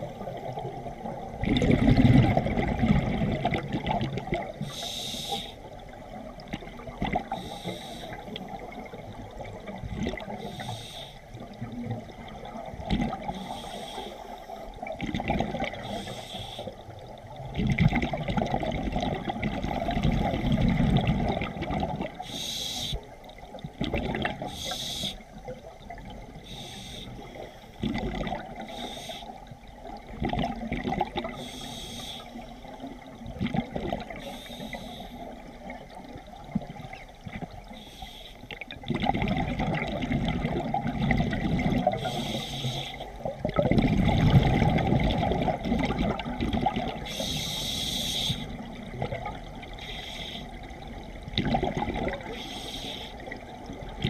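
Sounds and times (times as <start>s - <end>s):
exhaust bubbles gurgling: 0.0s - 4.7s, 5.7s - 7.4s, 8.1s - 10.6s, 11.4s - 13.6s, 14.7s - 16.1s, 17.0s - 22.2s, 23.6s - 24.6s, 27.3s - 28.8s, 29.6s - 31.5s, 32.8s - 34.4s, 38.5s - 47.3s, 48.4s - 49.8s, 50.6s - 52.5s
regulator hissing inhalations: 4.6s - 5.7s, 7.4s - 8.3s, 10.4s - 11.2s, 13.4s - 14.7s, 15.9s - 16.8s, 22.2s - 23.1s, 24.5s - 25.2s, 26.4s - 27.7s, 28.7s - 29.5s, 31.4s - 32.5s, 34.2s - 35.3s, 37.7s - 38.5s, 42.0s - 43.2s, 47.1s - 48.6s, 49.8s - 50.6s, 52.3s - 53.3s.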